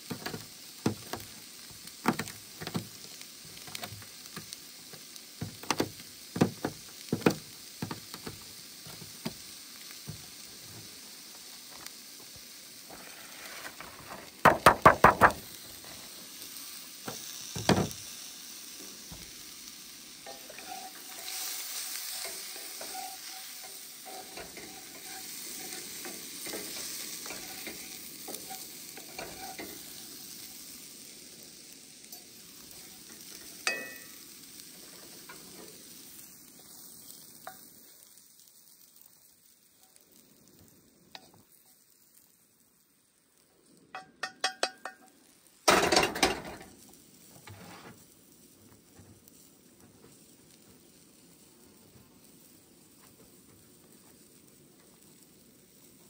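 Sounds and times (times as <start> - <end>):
food sizzling in pan: 0.0 - 56.0
loud knocks scraping cutting mat: 13.8 - 15.4.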